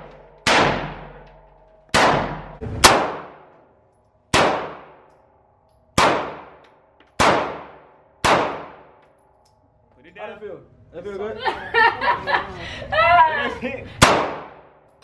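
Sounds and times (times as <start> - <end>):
handgun shots echoing indoors: 0.4 - 3.6, 4.3 - 9.4.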